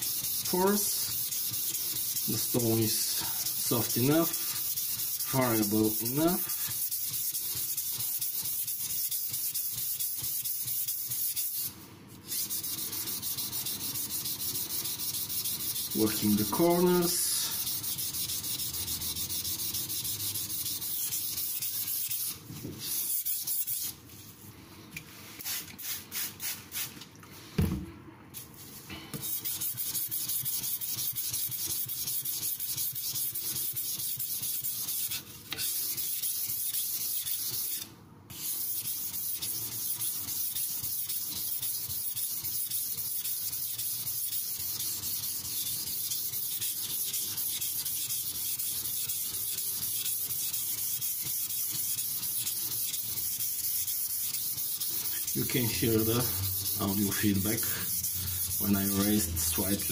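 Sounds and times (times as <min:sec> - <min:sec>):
knock: 0:27.6 - 0:27.9
knife scraping on whetstone: 0:29.2 - 0:59.9.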